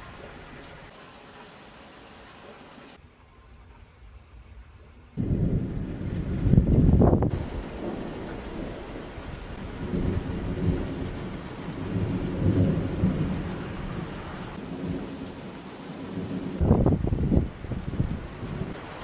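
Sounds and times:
rain hissing: 0:00.0 - 0:03.3, 0:03.9 - 0:19.0
thunder rumbling: 0:05.2 - 0:19.0.

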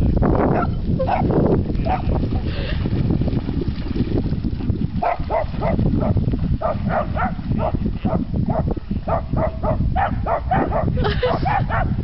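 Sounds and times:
dog barking: 0:00.5 - 0:01.3, 0:05.0 - 0:12.0.

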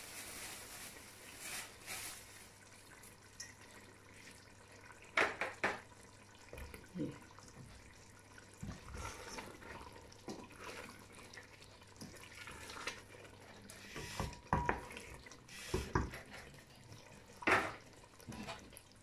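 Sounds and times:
thick curry squelching and bubbling: 0:06.0 - 0:19.0
spoon knocking against pot: 0:14.2 - 0:14.9.

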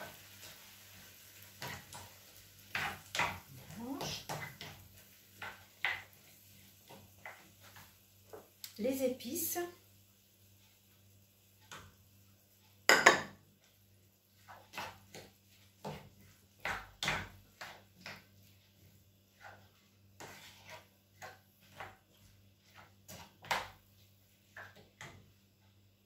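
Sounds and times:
spatula scraping a frying pan: 0:00.0 - 0:08.5, 0:13.6 - 0:25.2.

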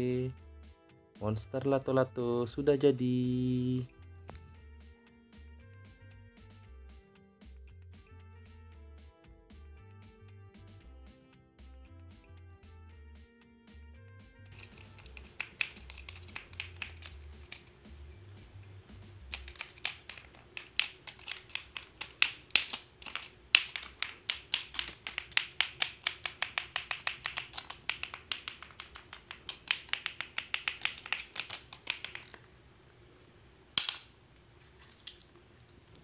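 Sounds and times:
plastic balls clacking: 0:14.6 - 0:17.8, 0:19.2 - 0:32.5, 0:33.8 - 0:35.4.

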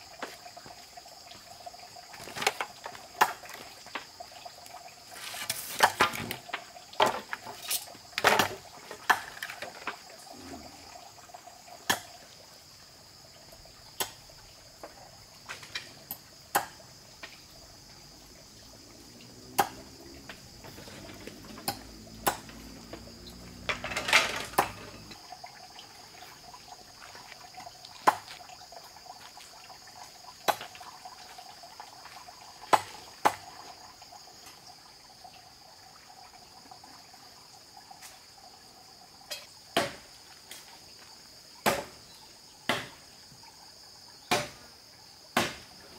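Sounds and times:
crickets chirring: 0:00.0 - 0:45.9
water poured into container: 0:00.6 - 0:12.2, 0:23.2 - 0:34.4
dishes clinking: 0:23.7 - 0:25.2.

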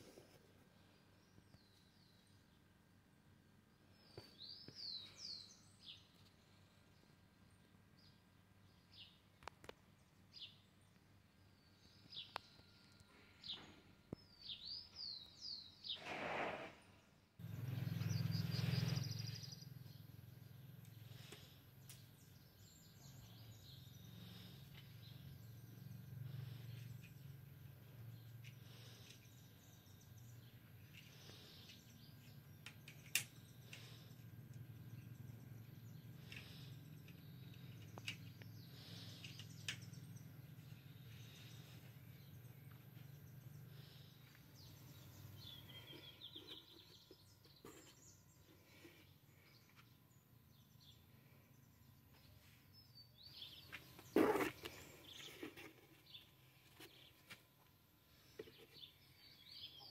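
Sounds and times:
birds chirping: 0:03.8 - 0:16.1, 0:17.4 - 0:59.9
steady low hum: 0:17.4 - 0:59.5.

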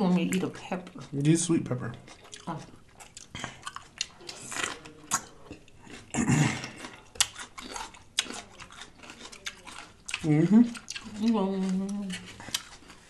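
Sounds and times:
crunching bites of peppers: 0:02.1 - 0:13.0
throaty vocal noise: 0:06.0 - 0:06.9.

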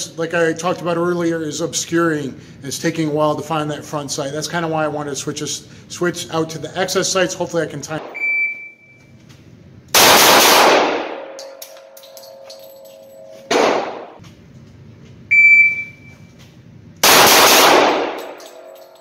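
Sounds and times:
short electronic beep: 0:08.2 - 0:09.1, 0:15.3 - 0:16.4
pistol shots echoing indoors: 0:09.9 - 0:12.4, 0:13.5 - 0:14.2, 0:17.0 - 0:19.0.

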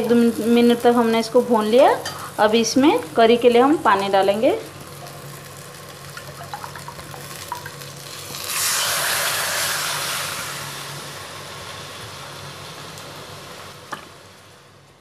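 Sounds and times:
frying masala crackling: 0:00.0 - 0:15.0
water hissing in hot pot: 0:06.2 - 0:14.8.

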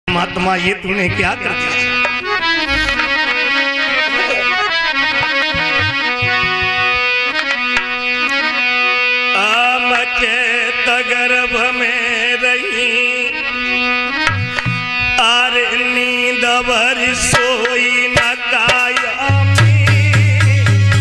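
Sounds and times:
man singing devotional song: 0:00.1 - 0:07.5, 0:08.2 - 0:21.0
held instrumental tones: 0:00.1 - 0:20.0
tabla strokes: 0:01.1 - 0:03.3, 0:05.1 - 0:08.1, 0:14.2 - 0:15.2.

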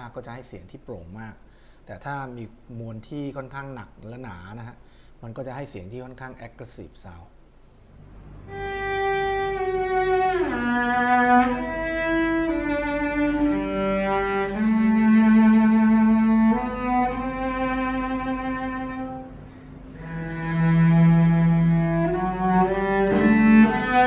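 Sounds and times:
bowed cello: 0:08.4 - 0:24.0.

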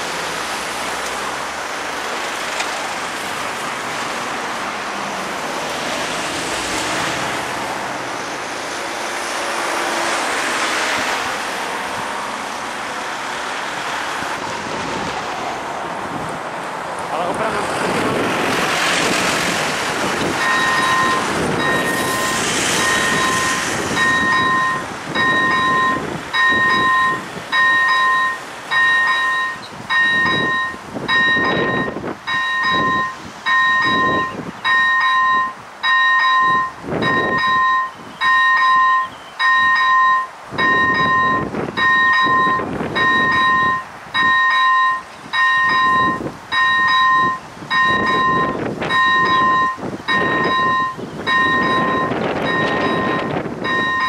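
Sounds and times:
two-tone crossing bell ringing: 0:20.4 - 0:54.0.

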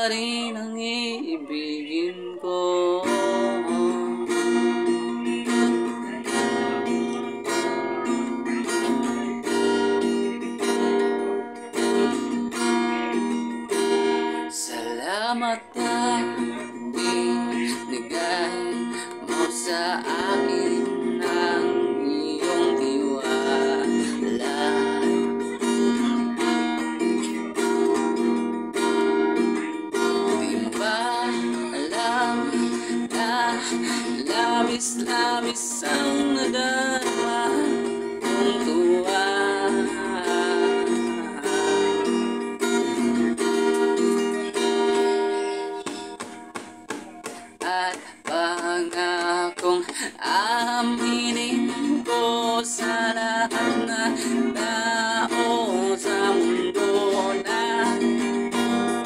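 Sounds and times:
man singing: 0:00.0 - 0:28.2, 0:29.9 - 0:45.2, 0:47.2 - 0:59.0
acoustic guitar strumming: 0:00.0 - 0:59.0.

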